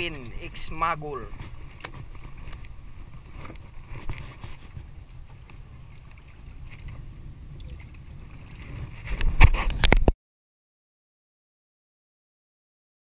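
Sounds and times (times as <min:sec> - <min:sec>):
water slopping against boat: 0:00.0 - 0:10.1
wind buffeting microphone: 0:00.0 - 0:10.1.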